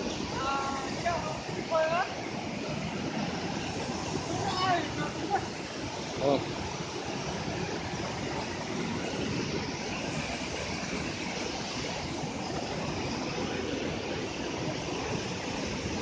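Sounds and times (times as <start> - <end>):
water rushing over boulders: 0.0 - 16.0.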